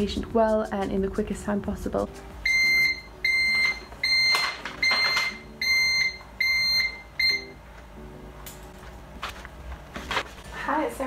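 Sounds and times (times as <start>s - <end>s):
pager beeping: 2.4s - 7.6s
paper rustling: 9.2s - 10.6s.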